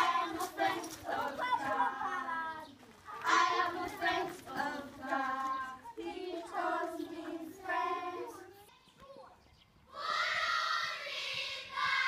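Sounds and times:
children singing: 0:00.0 - 0:02.4, 0:03.2 - 0:08.6.

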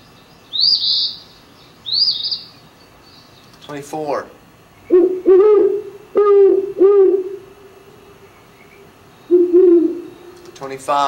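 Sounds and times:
owl hooting: 0:00.5 - 0:02.6, 0:04.8 - 0:10.6.

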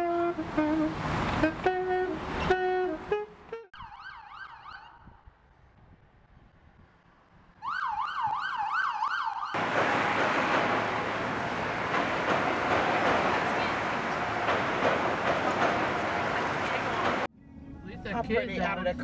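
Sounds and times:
saxophone held notes: 0:00.0 - 0:03.7
emergency siren yelping: 0:03.7 - 0:05.2, 0:07.6 - 0:09.6
elevated train passing: 0:09.6 - 0:19.0.

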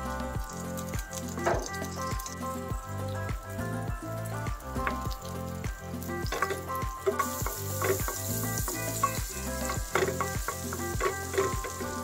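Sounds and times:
background music with beat: 0:00.0 - 0:12.0
butter sizzling in frying pan: 0:00.0 - 0:12.0
wooden spatula stirring: 0:06.4 - 0:12.0.

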